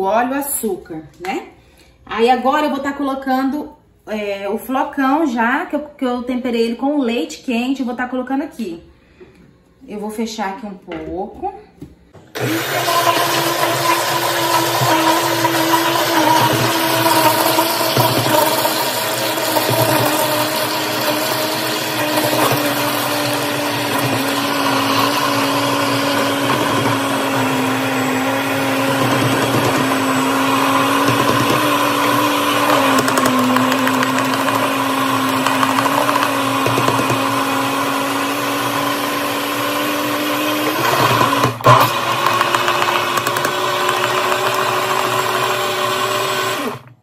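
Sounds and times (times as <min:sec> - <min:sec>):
blender motor whining: 0:12.3 - 0:47.0.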